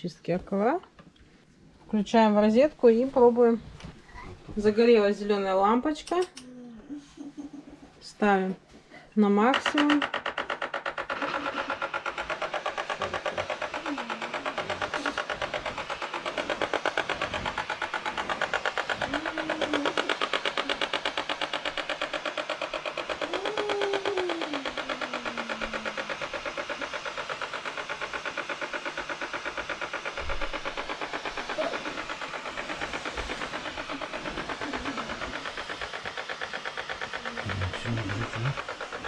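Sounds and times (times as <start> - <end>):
steam mop pump pulsing: 9.4 - 39.0
steam hissing: 11.3 - 21.0, 21.9 - 39.0.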